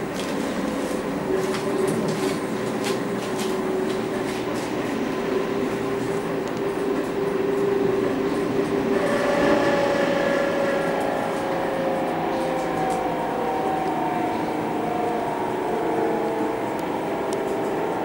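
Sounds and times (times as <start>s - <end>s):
train wheels rumbling on rails: 0.0s - 18.0s
electric traction motor whining: 8.5s - 18.0s.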